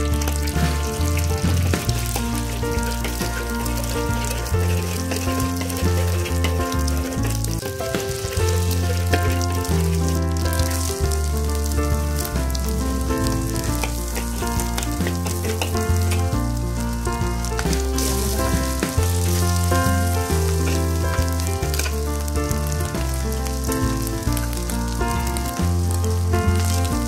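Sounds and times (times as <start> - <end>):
metal spatula scraping a wok: 0.0 - 10.9, 13.6 - 16.5
background music: 0.0 - 27.0
food sizzling in a wok: 0.0 - 27.0.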